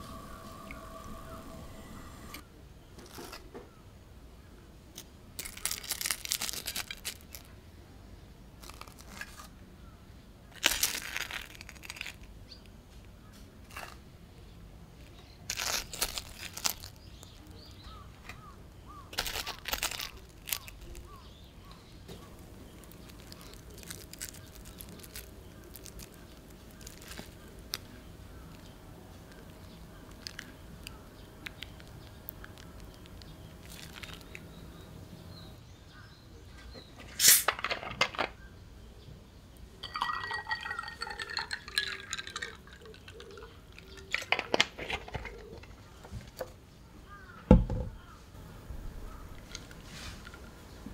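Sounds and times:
faint steady tone: 0.0 - 2.7
crunchy food crackling: 4.9 - 7.6, 8.6 - 9.6, 10.4 - 12.7, 13.6 - 35.6, 39.6 - 45.9, 49.0 - 50.9.

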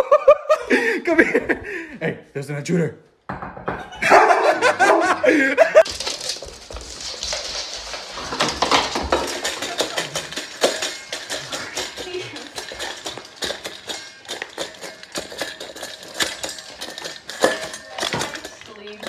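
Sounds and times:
dog eating from metal bowl: 5.8 - 19.0.

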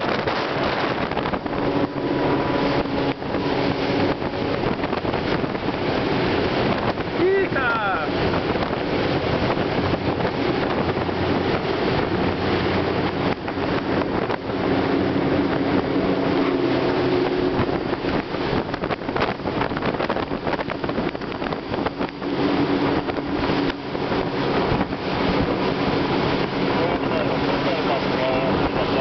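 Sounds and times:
speedboat engine droning: 0.0 - 29.0
wind buffeting microphone: 0.0 - 29.0.

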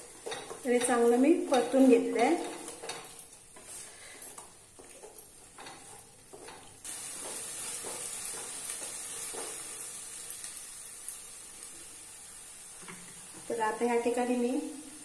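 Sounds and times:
frying sizzle: 0.0 - 15.0.

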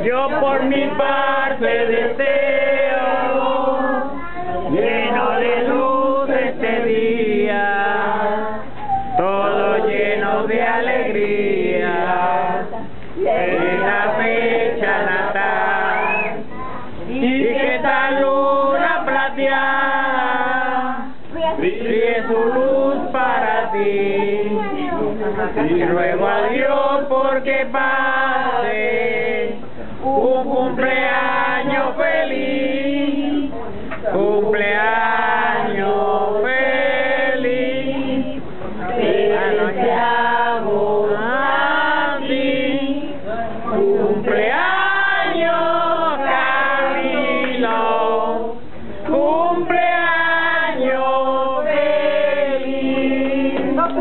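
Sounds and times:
family singing a celebration song: 0.0 - 54.0.

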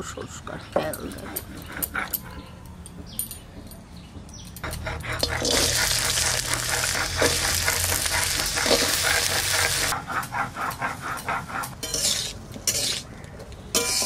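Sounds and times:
potatoes sizzling in hot oil: 5.2 - 9.9.

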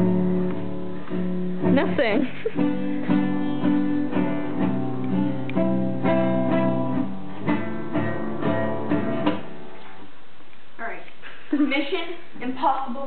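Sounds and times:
acoustic guitar strumming: 0.0 - 10.1.

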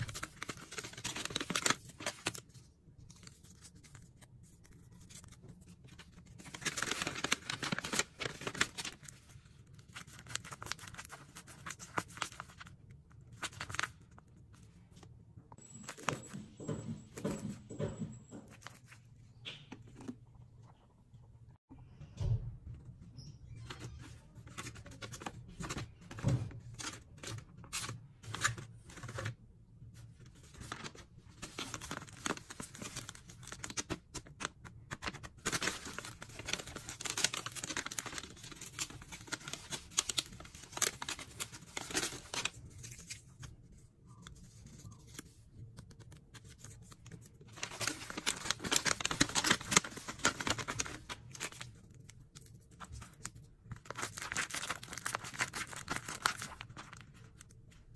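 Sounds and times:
paper rustling and tearing: 0.0 - 2.5, 3.1 - 12.7, 30.4 - 43.5, 46.3 - 57.6
plastic wrapper rustling: 3.2 - 12.7, 30.4 - 43.5, 46.4 - 57.9.

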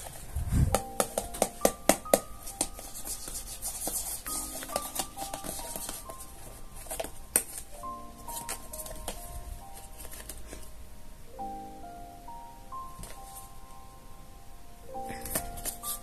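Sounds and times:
hands handling cardboard box: 0.0 - 10.7
light background music: 0.0 - 16.0.

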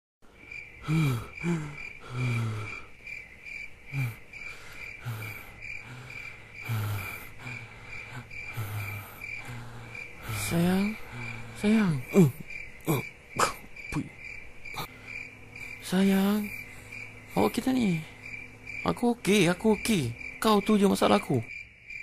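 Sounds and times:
crickets chirping: 0.2 - 22.0
short low vocal sounds: 5.0 - 14.2.

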